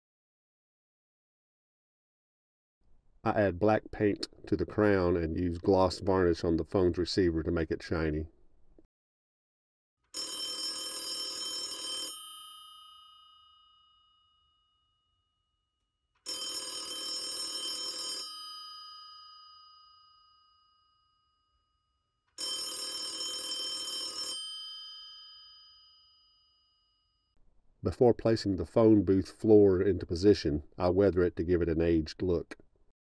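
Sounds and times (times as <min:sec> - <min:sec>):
telephone bell ringing: 0:10.1 - 0:15.0, 0:16.2 - 0:21.5, 0:22.3 - 0:27.3.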